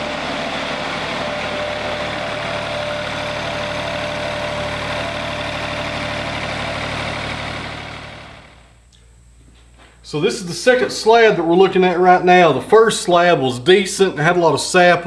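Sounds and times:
band sawmill engine running: 0:00.0 - 0:08.8
thin steady whine: 0:00.0 - 0:14.5.

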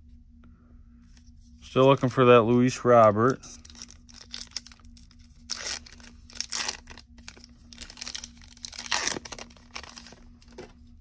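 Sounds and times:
foil wrapper tearing and crinkling: 0:03.5 - 0:10.6.

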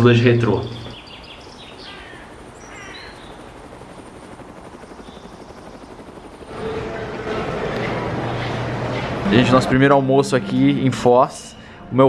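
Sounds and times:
steady fluttering noise: 0:00.0 - 0:09.2
short chirping calls: 0:00.6 - 0:06.4.

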